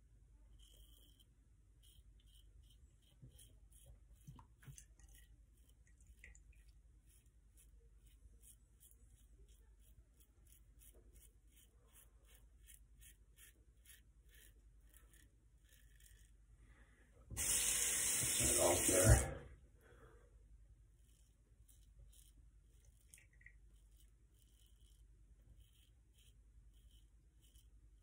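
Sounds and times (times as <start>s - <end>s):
razor scraping stubble: 0.4s - 16.5s, 20.9s - 28.0s
tap water running into sink: 17.4s - 19.2s.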